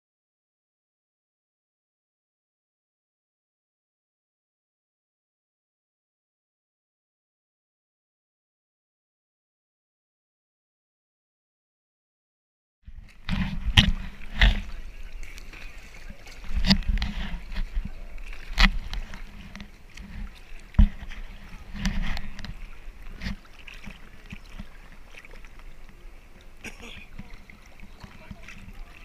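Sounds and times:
water sloshing against camera: 12.9s - 29.0s
sharp water splash: 13.0s - 25.8s.

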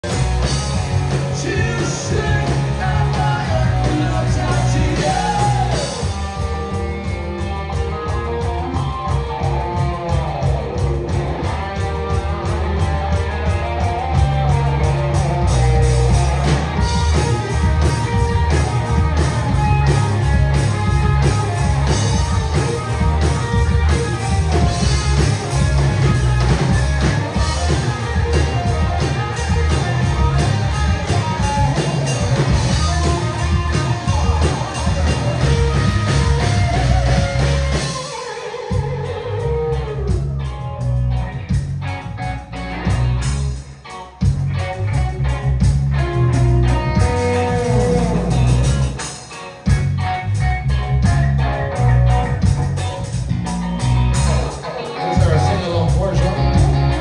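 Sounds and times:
electric lead guitar: 0.0s - 57.0s
live rock band playing: 0.0s - 57.0s.

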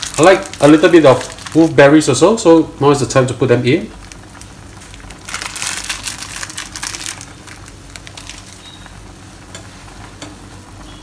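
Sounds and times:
broth boiling hard in a pan: 0.0s - 11.0s.

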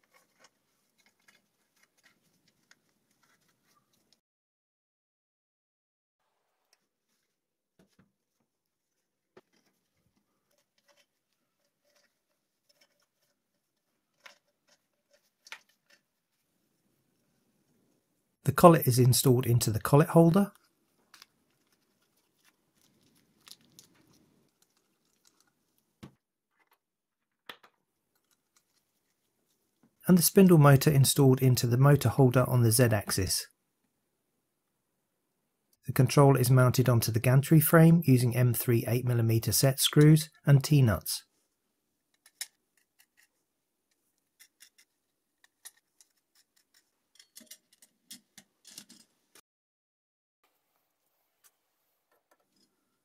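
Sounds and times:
small clicks and taps of screws: 43.9s - 49.0s.

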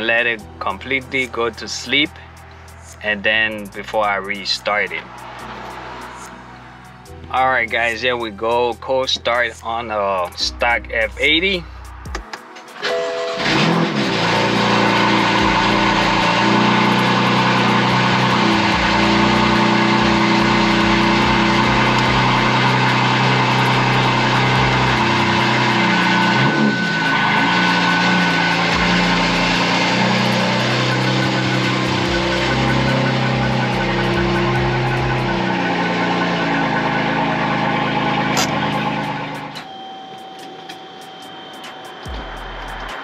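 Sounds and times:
car engine cold start and fast idle: 12.8s - 26.9s.

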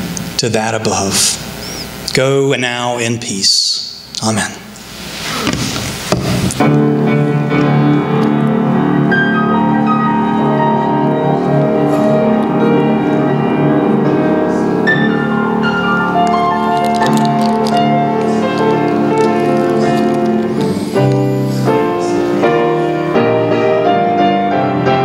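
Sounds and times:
grand piano playing slow piece: 6.3s - 25.0s.

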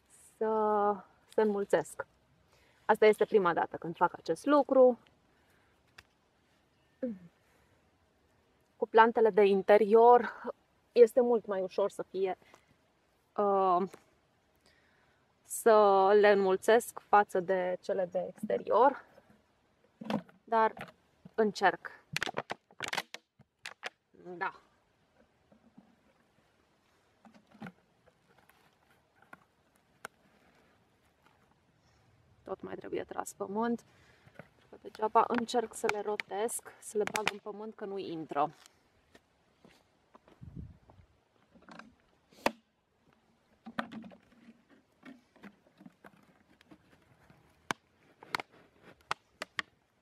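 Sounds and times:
plastic bottle clicks and rustles: 19.9s - 21.4s, 22.1s - 24.0s, 27.2s - 31.5s, 34.2s - 37.5s, 41.4s - 49.8s.

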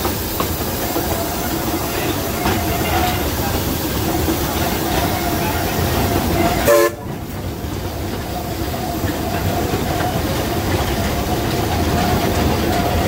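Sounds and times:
high steam hiss: 0.0s - 13.0s
steam locomotive wheels rumbling: 0.0s - 13.0s
steam whistle toot: 6.4s - 7.0s.

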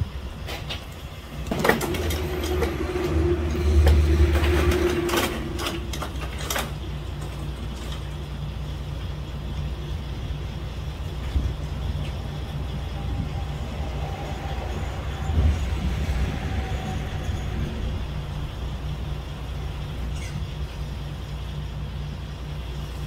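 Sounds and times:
low engine rumble: 0.0s - 23.0s
metal clanks and rattles: 0.4s - 8.7s
held squeak: 20.0s - 20.8s.

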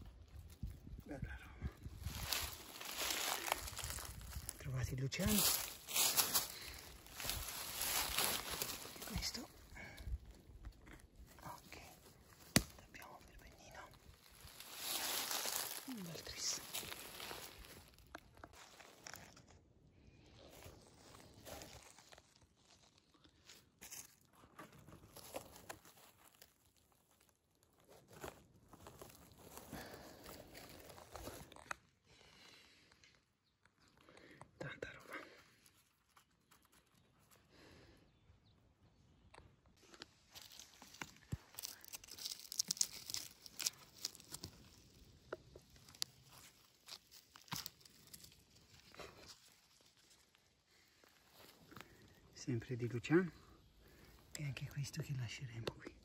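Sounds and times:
rustling of dry forest litter: 0.0s - 56.0s
sharp crackles: 40.4s - 50.9s.

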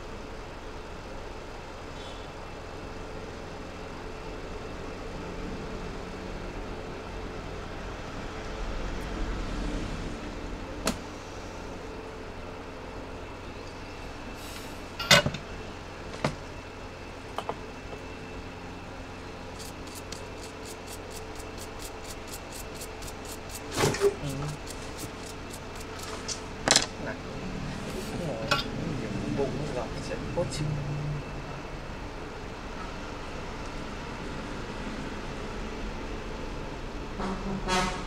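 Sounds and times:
background hum: 0.0s - 37.2s.

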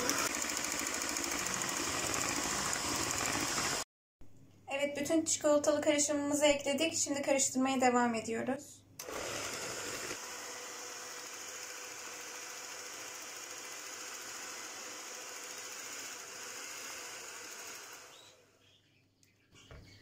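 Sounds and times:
electric hand mixer whisking batter: 0.0s - 3.8s, 9.0s - 18.2s.

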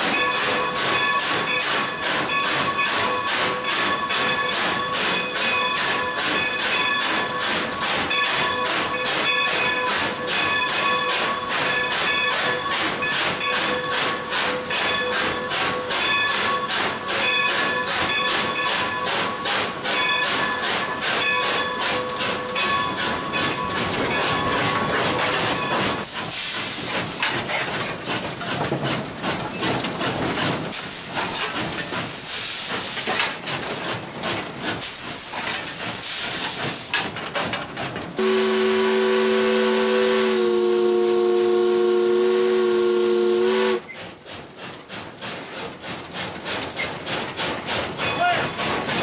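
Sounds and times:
steam locomotive hissing: 0.0s - 49.0s
steam whistle blast: 38.2s - 43.9s.

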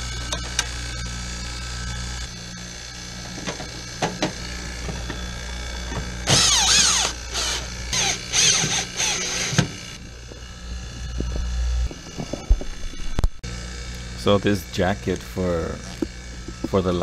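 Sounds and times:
drill motor whining: 0.0s - 17.0s.

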